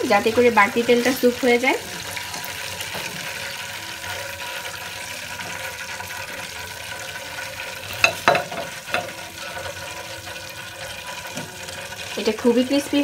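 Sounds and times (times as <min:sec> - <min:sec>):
chicken sizzling in deep oil: 0:00.0 - 0:13.0
skimmer clacking on plate: 0:08.0 - 0:09.2.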